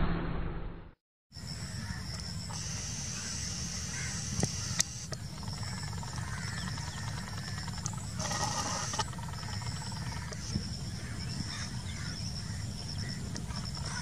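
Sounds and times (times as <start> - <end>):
continuous low rumble: 1.4 - 14.0
pulsing high-pitched animal trill: 1.8 - 10.6, 13.5 - 14.0.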